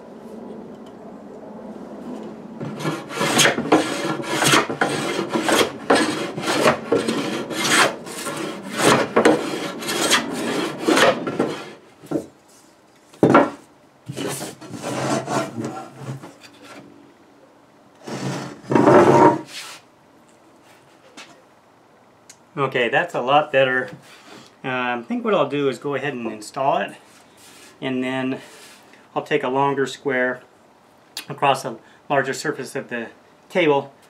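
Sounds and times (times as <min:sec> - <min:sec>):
loud plane scrape: 0:01.6 - 0:11.8, 0:14.1 - 0:16.2, 0:18.0 - 0:19.9
hand plane shaving wood: 0:02.6 - 0:11.8, 0:14.1 - 0:16.2.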